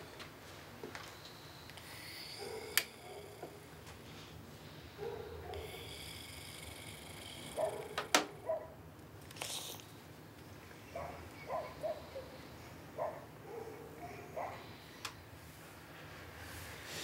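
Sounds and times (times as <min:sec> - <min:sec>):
breathy hiss: 0:01.1 - 0:08.5, 0:09.3 - 0:10.1.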